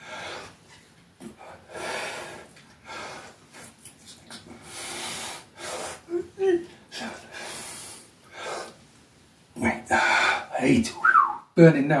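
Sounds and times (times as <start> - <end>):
man breathing hard: 1.3 - 3.5, 4.6 - 6.1, 9.9 - 10.6.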